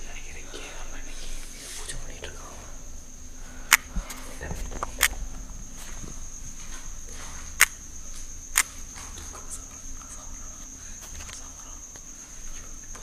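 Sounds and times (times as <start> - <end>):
crickets trilling: 0.0 - 13.0
sharp clicks: 3.7 - 3.9.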